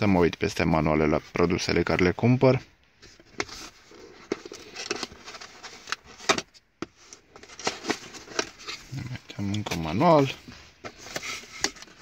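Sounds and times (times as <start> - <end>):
cardboard box rustling and scraping: 9.7 - 12.0.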